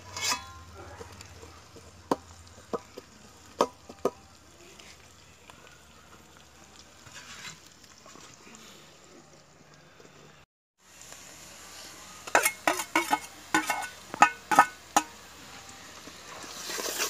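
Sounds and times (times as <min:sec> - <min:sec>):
food sizzling: 0:00.0 - 0:17.0
soft scrape: 0:07.0 - 0:08.8, 0:15.5 - 0:17.0.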